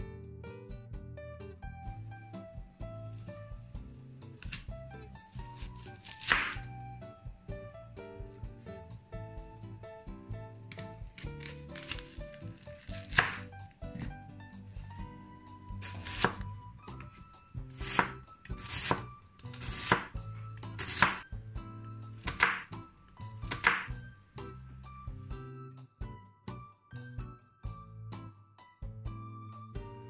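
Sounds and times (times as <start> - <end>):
light background music: 0.0 - 30.0
knife slicing through onion: 4.3 - 6.7, 10.7 - 14.2, 15.7 - 21.3, 22.1 - 22.8, 23.4 - 24.0.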